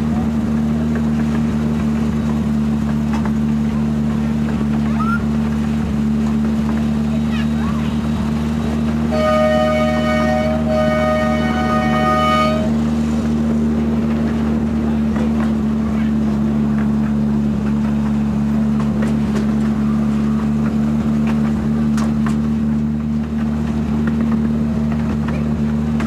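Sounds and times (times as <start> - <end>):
locomotive engine drone: 0.0 - 26.0
wheels clicking on track: 0.0 - 26.0
train horn: 9.1 - 12.9.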